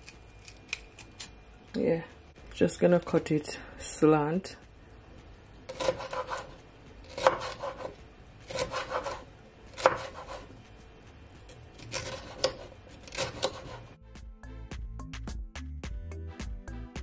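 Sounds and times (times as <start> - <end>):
knife slicing pepper on board: 5.7 - 10.5, 11.7 - 13.9.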